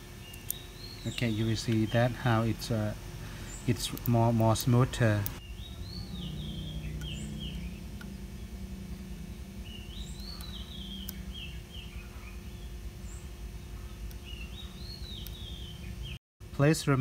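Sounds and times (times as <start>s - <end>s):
songbird whistling: 5.4s - 8.5s, 9.3s - 16.2s.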